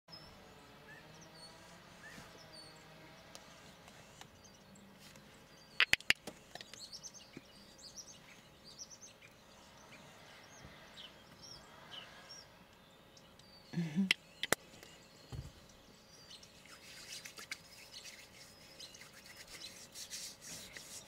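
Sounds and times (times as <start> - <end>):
small birds chirping: 0.1 - 21.0
sharp clicks: 5.8 - 6.9, 14.1 - 14.6.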